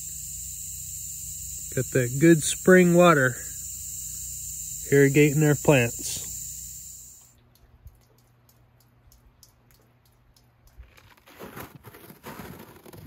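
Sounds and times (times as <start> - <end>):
steady high hiss: 0.0 - 7.3.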